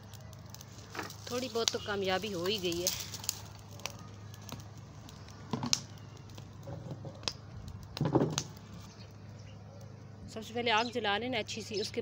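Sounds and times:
wood fire crackling and popping: 0:00.0 - 0:11.2.

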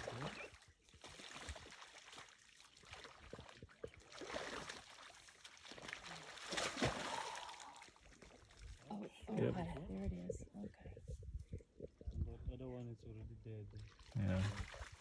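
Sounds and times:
animals splashing through shallow water: 0:00.0 - 0:09.2, 0:13.8 - 0:15.0.

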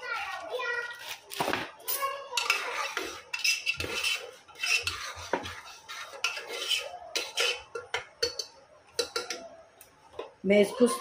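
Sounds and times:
metal spoon scraping pot: 0:02.4 - 0:09.4.

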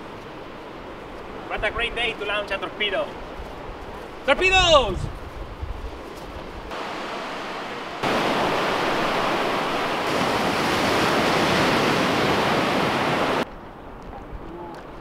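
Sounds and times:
surf breaking on beach: 0:06.7 - 0:13.4.

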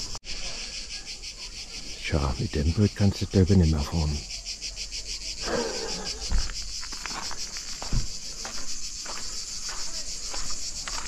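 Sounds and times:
cicadas buzzing: 0:00.0 - 0:11.0
footstep thumps: 0:06.2 - 0:11.0.

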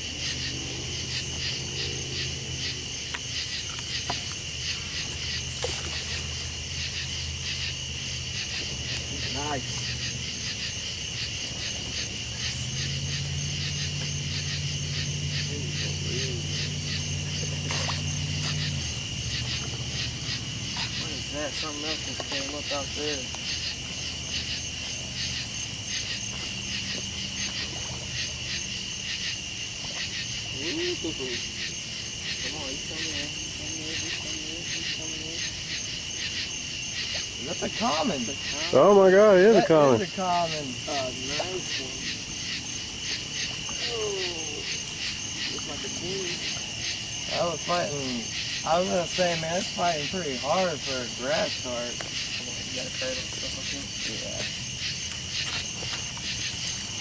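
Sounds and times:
crickets and insects trilling: 0:00.0 - 0:57.0.

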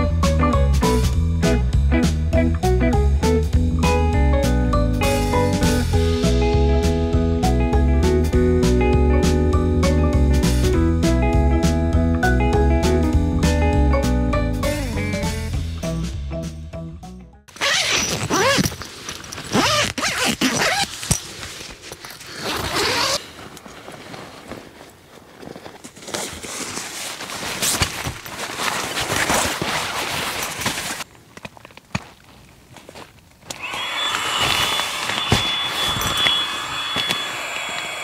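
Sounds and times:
tent zip being pulled: 0:17.5 - 0:31.1, 0:33.6 - 0:37.4
air pump whining: 0:33.5 - 0:38.0.

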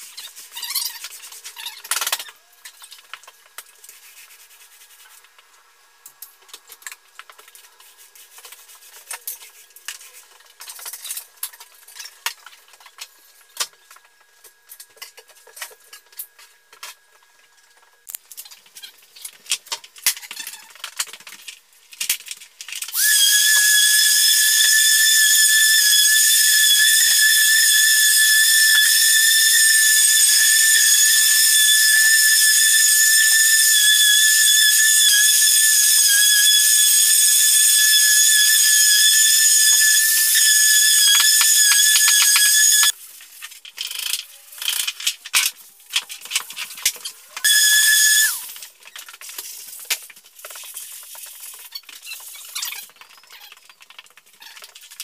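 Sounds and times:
machine high-pitched whine: 0:22.9 - 0:43.0, 0:47.4 - 0:48.6.

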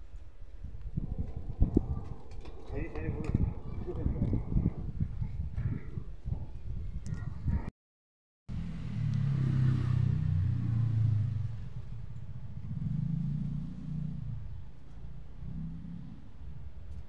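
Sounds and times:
vehicle engine rumbling: 0:08.5 - 0:17.0.

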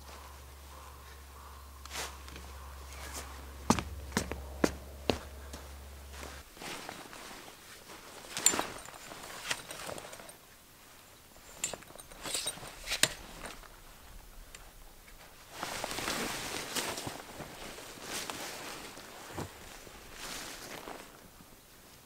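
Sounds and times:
footsteps on pine needles: 0:00.0 - 0:08.3
tent fabric rustling: 0:05.1 - 0:14.0, 0:14.6 - 0:22.0.

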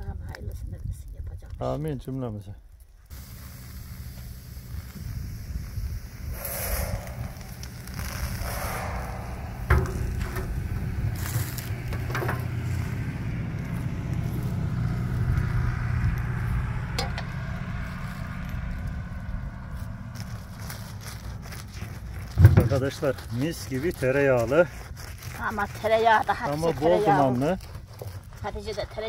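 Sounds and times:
wood fire crackling: 0:02.8 - 0:29.0
low rumble: 0:04.8 - 0:22.3
sharp pops: 0:06.2 - 0:12.7.

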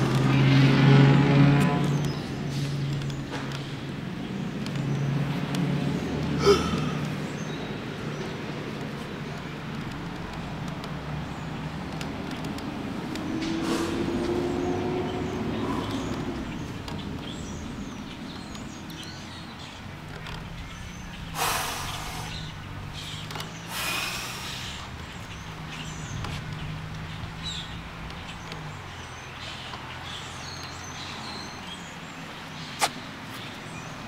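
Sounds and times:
low engine hum: 0:00.0 - 0:34.0
short hissing rushes: 0:13.6 - 0:14.0, 0:21.4 - 0:22.4.

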